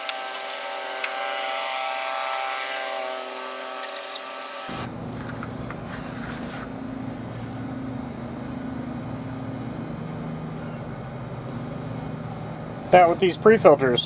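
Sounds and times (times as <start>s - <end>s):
low drone of running machinery: 0.0s - 14.0s.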